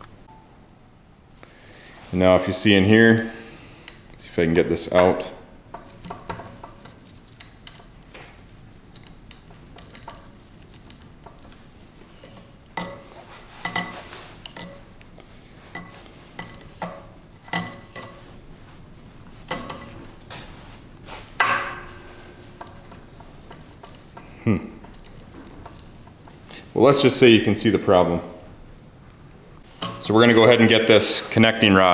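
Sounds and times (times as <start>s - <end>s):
metal parts clinking and tapping: 4.9s - 18.3s, 19.5s - 20.0s, 21.4s - 26.6s, 29.7s - 30.1s.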